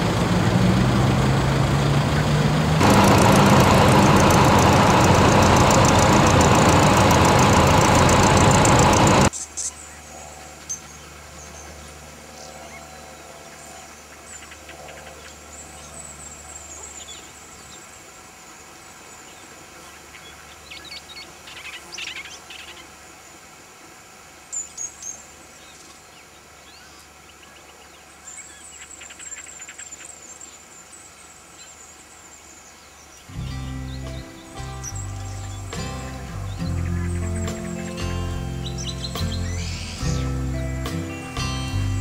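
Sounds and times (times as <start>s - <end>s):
birds chirping and trilling: 2.1s - 17.8s, 24.6s - 40.7s.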